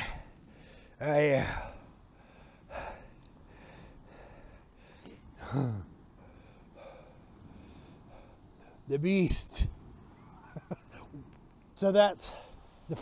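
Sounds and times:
faint background hiss: 0.0s - 13.0s.

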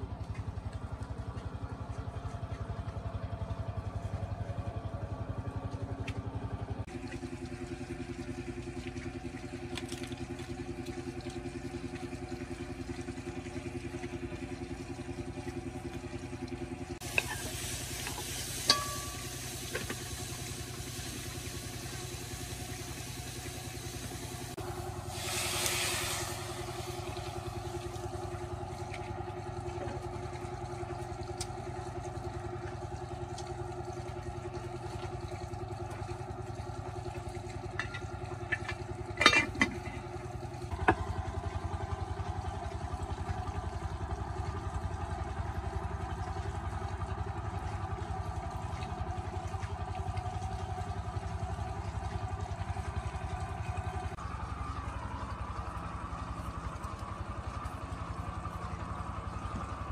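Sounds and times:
motorcycle engine running: 0.0s - 59.9s
hissing noise: 24.2s - 26.8s.

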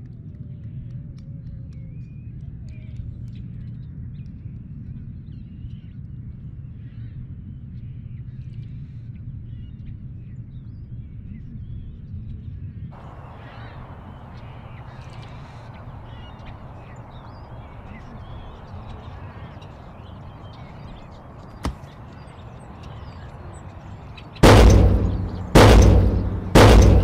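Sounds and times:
birds calling: 13.0s - 27.0s
sharp click: 24.4s - 27.0s
steady low rumble: 24.4s - 27.0s.

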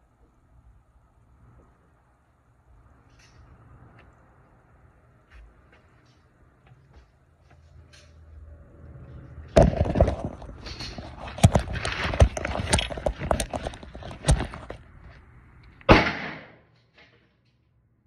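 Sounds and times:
faint gunshot cracks: 15.9s - 16.6s
pistol shots echoing indoors: 15.9s - 16.6s.

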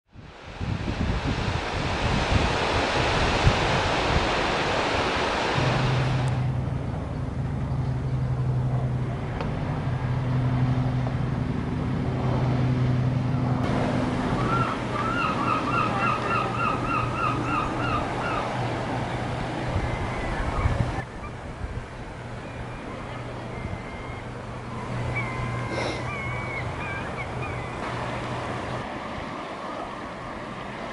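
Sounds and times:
waves breaking on a beach: 0.1s - 6.8s, 13.3s - 30.9s
wind noise: 0.1s - 7.1s, 17.4s - 22.4s
steady low hum: 3.0s - 30.9s
bird call repeating: 14.4s - 18.5s.

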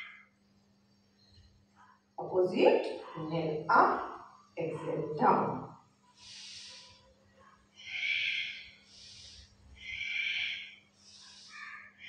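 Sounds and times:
woman breathing deeply: 6.2s - 7.0s, 7.8s - 11.7s.

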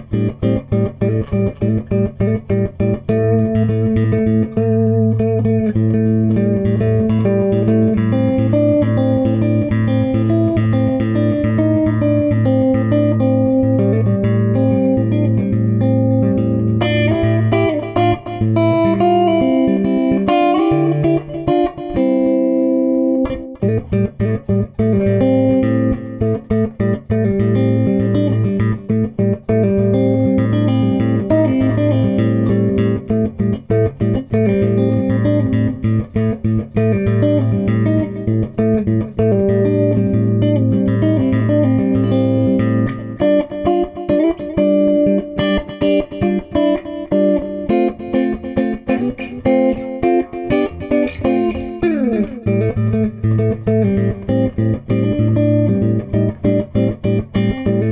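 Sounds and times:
plucked guitar notes: 0.0s - 57.9s.

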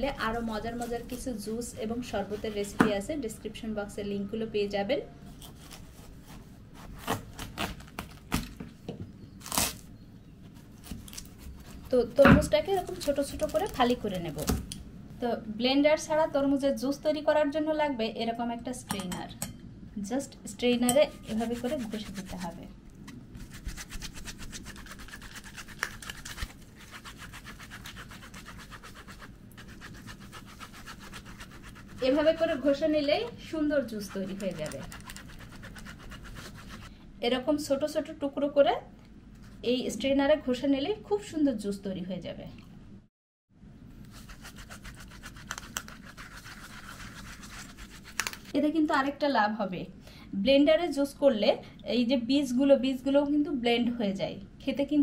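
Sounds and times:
knife cutting watermelon: 5.3s - 8.6s, 10.6s - 14.7s, 33.8s - 36.8s.

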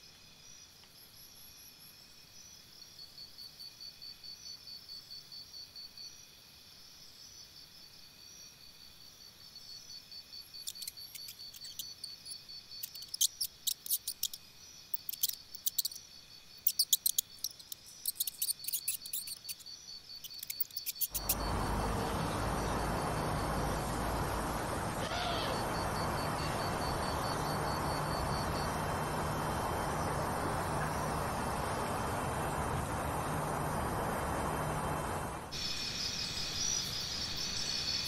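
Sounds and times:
insects trilling: 0.0s - 38.0s
pulsed insect trill: 9.8s - 38.0s
sharp high clicking: 16.7s - 19.6s, 20.2s - 21.5s.

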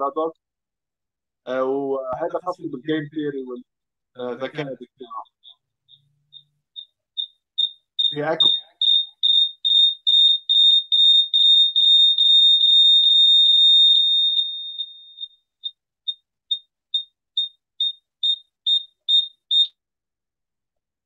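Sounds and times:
high-pitched electronic beeps: 4.4s - 9.3s.

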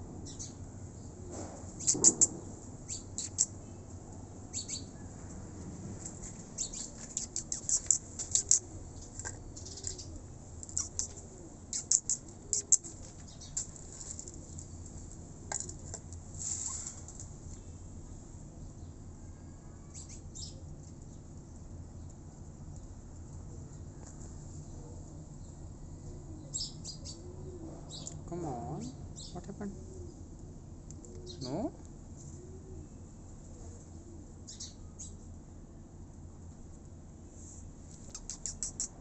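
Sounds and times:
small birds chirping: 0.2s - 5.2s, 6.3s - 15.2s, 19.9s - 23.0s, 23.7s - 30.2s, 34.4s - 35.3s, 37.9s - 39.0s.

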